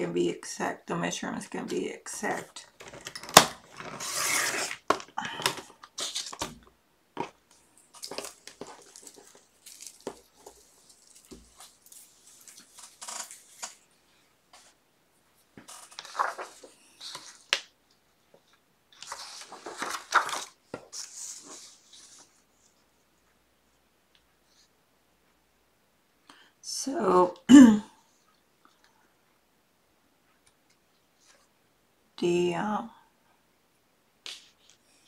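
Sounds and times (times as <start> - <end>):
paper rustling and cutting: 2.8 - 5.1, 5.9 - 6.6, 7.9 - 13.8, 15.7 - 17.6, 19.0 - 22.3.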